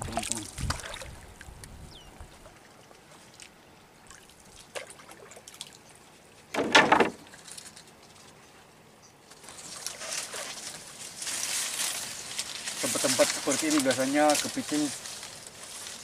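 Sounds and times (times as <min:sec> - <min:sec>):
swish of disturbed water: 0:00.0 - 0:01.4, 0:09.6 - 0:16.0
water trickling and sloshing: 0:00.0 - 0:08.3, 0:09.3 - 0:12.8.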